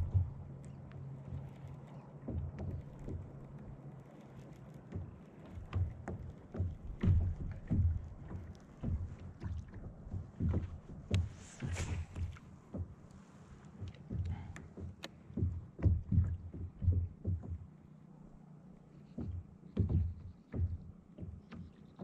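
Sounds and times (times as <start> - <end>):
waves knocking on plastic hull: 0.0 - 22.0
fishing rod cast swish: 11.5 - 12.3.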